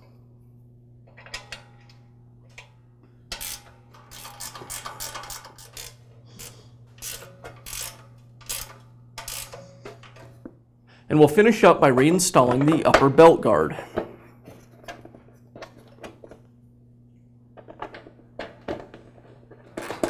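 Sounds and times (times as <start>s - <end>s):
ratchet wrench clicking: 3.3s - 10.2s.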